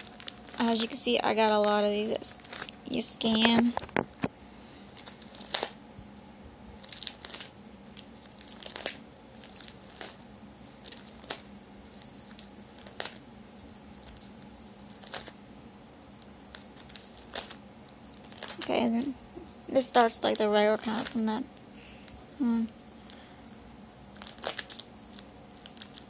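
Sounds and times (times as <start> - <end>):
plastic sleeve pages crinkling: 0.0 - 4.1, 4.8 - 5.8, 6.8 - 15.4, 16.2 - 21.4, 24.1 - 26.0.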